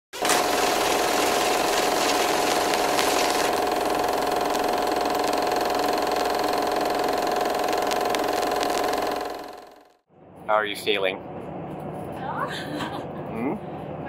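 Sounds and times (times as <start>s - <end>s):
steady engine drone: 0.2s - 9.7s.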